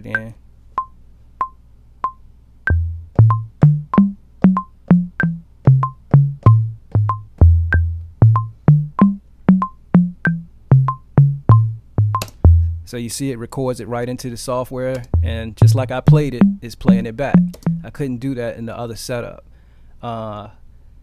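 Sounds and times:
metronome clicking: 0.0s - 12.9s, 14.9s - 17.9s
low drum bass line: 2.7s - 12.9s, 15.1s - 18.0s.

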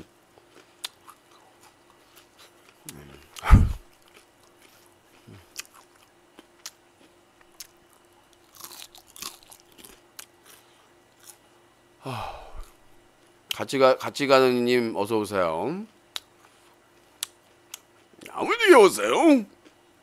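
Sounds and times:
crunchy fried chicken chewing: 0.3s - 11.5s
person making short voiced sound: 3.4s - 3.8s.

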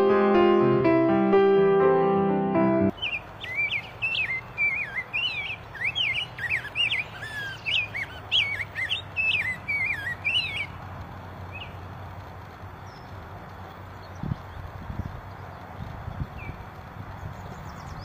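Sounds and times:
bird singing whistled phrases: 2.9s - 10.8s.

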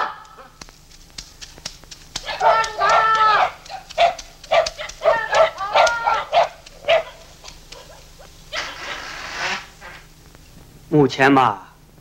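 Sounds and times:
dog barking: 2.2s - 9.2s.

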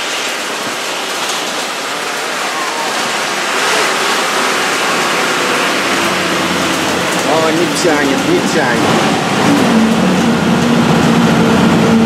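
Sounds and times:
bus engine droning: 0.0s - 12.0s
wind and road noise: 0.0s - 12.0s.

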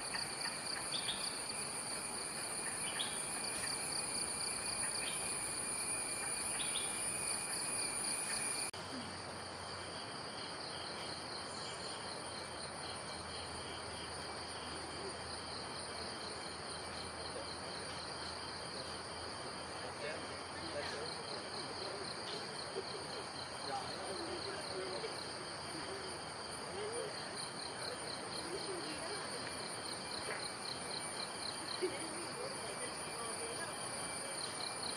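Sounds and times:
short insect chirps: 0.0s - 9.2s
insects trilling: 0.0s - 34.9s.

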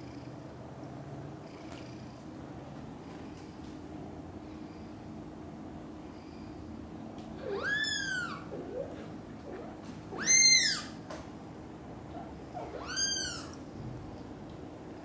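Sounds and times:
kitten meowing: 7.4s - 8.9s, 10.2s - 11.0s, 12.6s - 13.6s.

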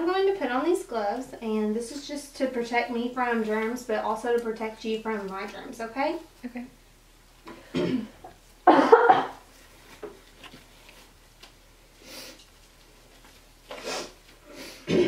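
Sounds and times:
person coughing: 7.6s - 9.4s, 14.8s - 15.0s.

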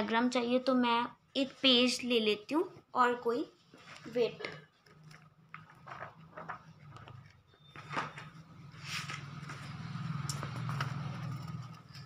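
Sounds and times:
paper rustling: 5.5s - 11.5s.

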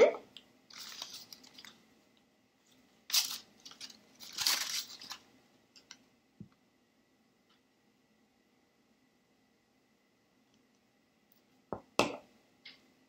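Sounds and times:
paper rustling and crinkling: 0.7s - 1.8s, 2.7s - 5.9s.

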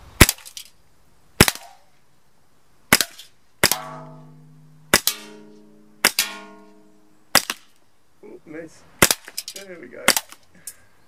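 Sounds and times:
bb pistol shots: 1.4s - 1.8s, 2.9s - 7.7s, 9.0s - 9.3s, 10.1s - 10.4s
metallic ringing of bbs hitting cans: 3.6s - 7.1s.

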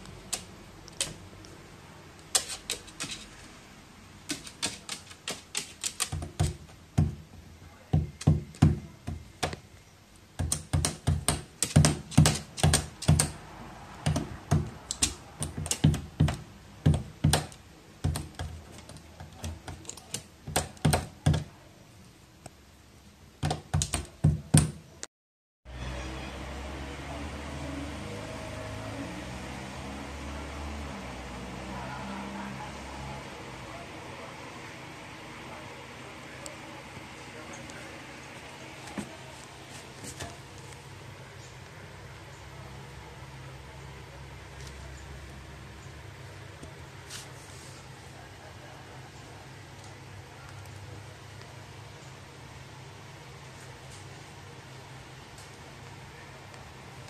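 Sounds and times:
crow tapping on hard floor: 4.3s - 9.6s, 10.4s - 13.4s, 14.0s - 21.5s, 23.4s - 24.8s.

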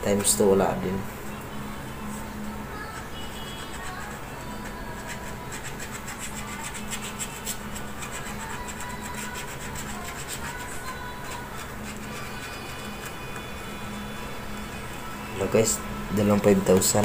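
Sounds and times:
scratching a scratch card: 2.8s - 13.5s.

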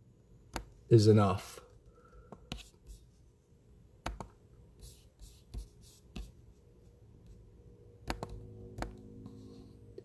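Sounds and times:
low steady hum: 0.0s - 10.0s
soft computer clicks and taps: 0.5s - 0.8s, 4.0s - 4.4s, 8.0s - 9.1s.

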